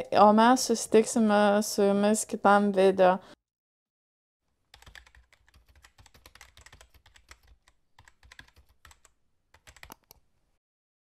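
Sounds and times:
keyboard typing: 4.7s - 10.2s.

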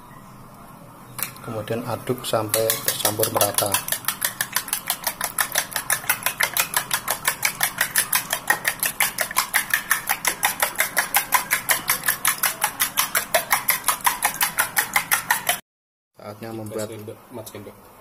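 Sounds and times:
utensil beating eggs in ceramic bowl: 1.6s - 15.6s.

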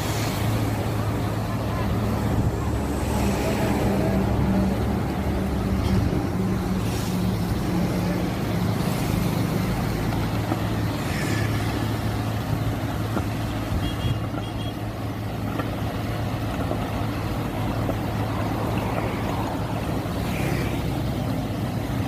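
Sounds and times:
road traffic passing: 0.0s - 22.0s
truck engine humming: 0.0s - 22.0s.

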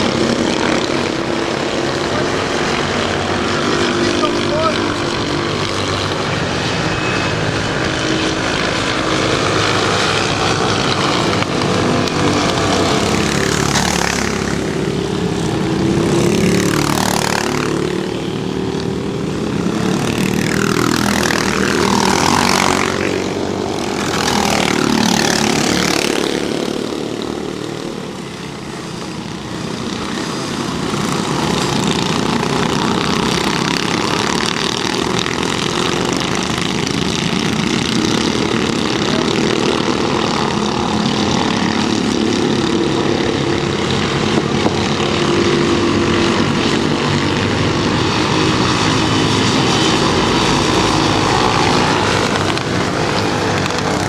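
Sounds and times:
distant go-kart engines droning: 0.0s - 54.0s
go-karts passing by: 0.0s - 54.0s.

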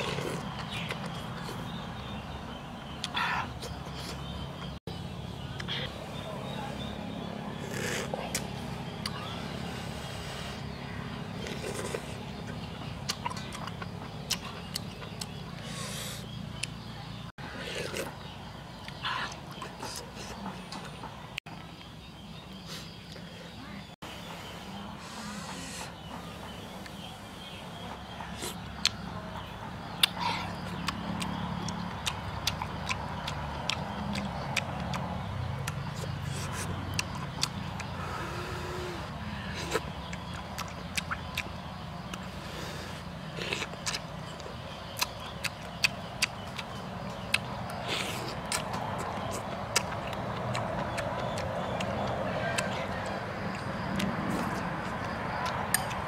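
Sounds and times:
chewing and lip-smacking: 11.4s - 15.5s, 30.0s - 38.4s, 39.6s - 42.5s, 43.3s - 56.0s.

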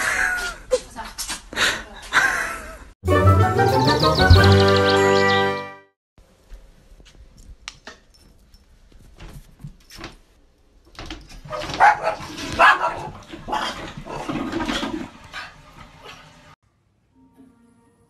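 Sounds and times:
small dog barking: 11.5s - 13.1s.

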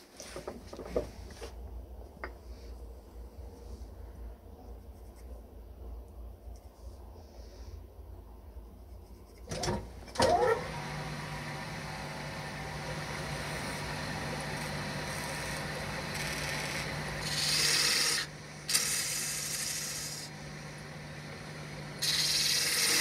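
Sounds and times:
power tool motor hum: 10.2s - 20.3s, 21.2s - 23.0s
rasping grinding: 13.3s - 20.3s, 22.0s - 23.0s.

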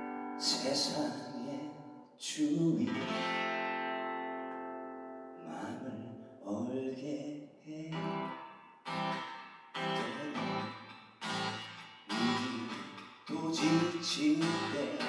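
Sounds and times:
acoustic guitar strumming chords: 2.8s - 5.6s, 7.9s - 15.0s.

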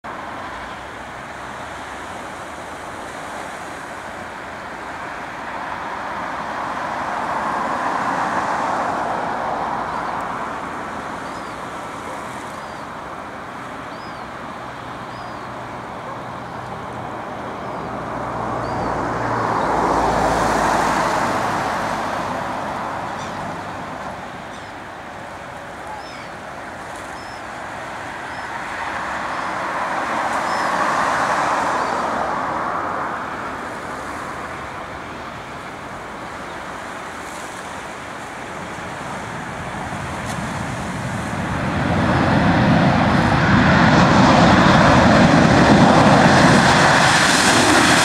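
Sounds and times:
traffic hiss: 0.1s - 48.0s
vehicles passing: 0.1s - 48.0s.

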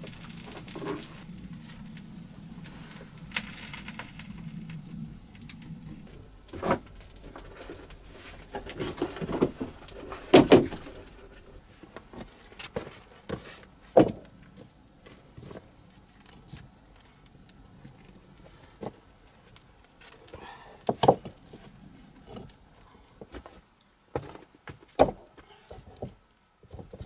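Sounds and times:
stones knocking together: 8.5s - 11.0s.

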